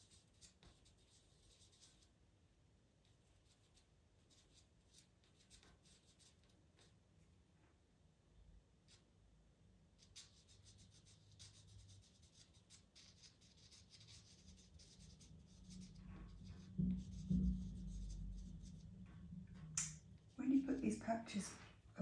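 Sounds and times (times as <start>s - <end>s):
pencil strokes on paper: 0.0s - 2.1s, 3.0s - 6.9s, 10.0s - 18.8s
low bumps: 15.7s - 22.0s
sharp click: 19.8s - 20.0s.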